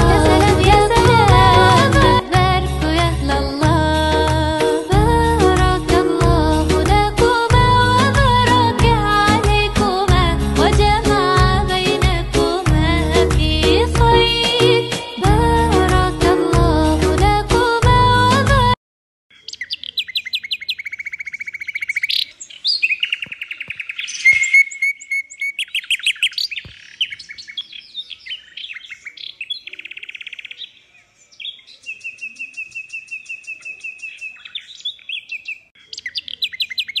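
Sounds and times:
songbird trilling and chirping: 0:19.3 - 0:37.0.

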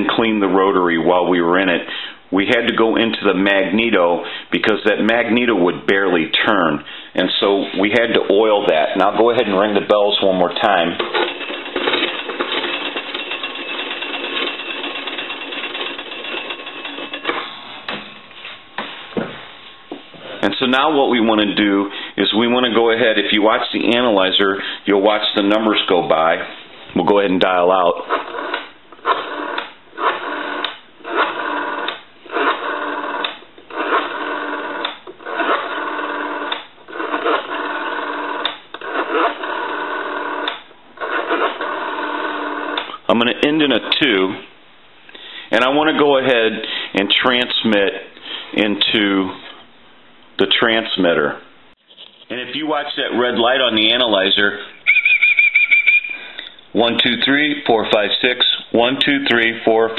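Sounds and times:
telephone magneto crank whirring: 0:08.5 - 0:17.4, 0:28.0 - 0:43.0
telephone bells ringing: 0:10.8 - 0:17.4.

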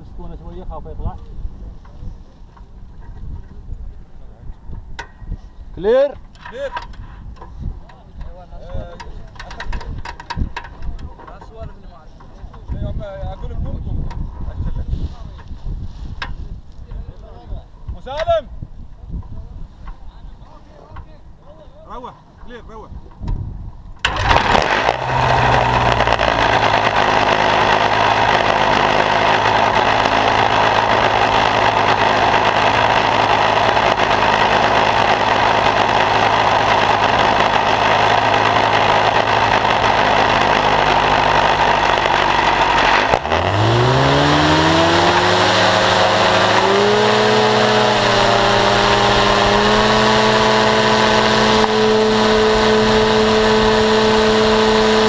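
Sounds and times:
paramotor engine and propeller: 0:24.0 - 0:55.0.

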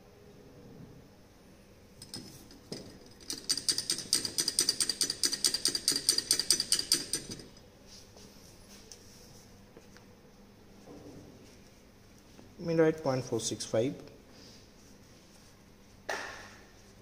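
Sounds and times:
glass rod clinking in beaker: 0:02.0 - 0:07.6.

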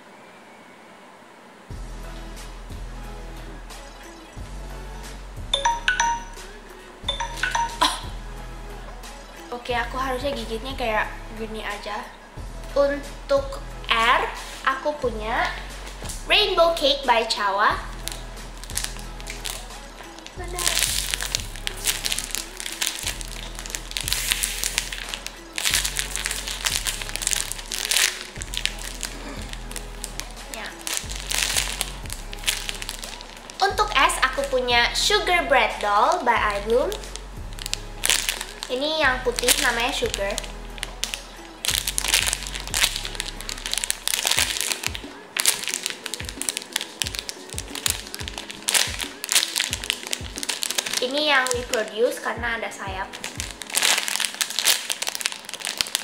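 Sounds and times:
background music: 0:01.6 - 0:56.0
plastic bag crinkling: 0:17.3 - 0:34.7, 0:36.9 - 0:52.3, 0:53.0 - 0:56.0.

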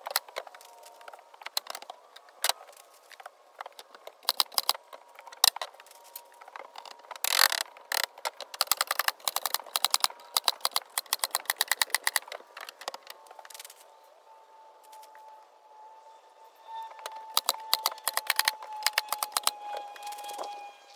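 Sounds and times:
sharp clicks and taps: 0:07.3 - 0:13.2, 0:17.3 - 0:19.5.

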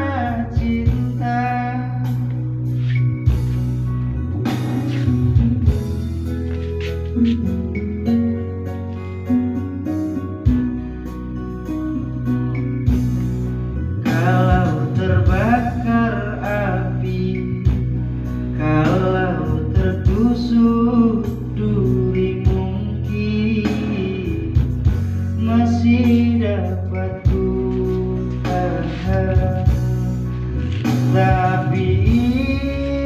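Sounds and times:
man singing into a microphone: 0:00.0 - 0:02.9, 0:14.0 - 0:33.0
karaoke backing track with guitar: 0:00.0 - 0:33.0.

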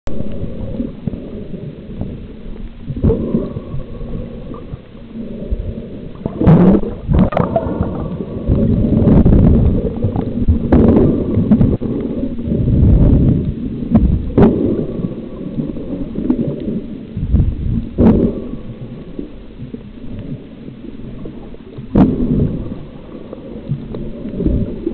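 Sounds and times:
underwater water rumbling and gurgling: 0:00.1 - 0:24.9.

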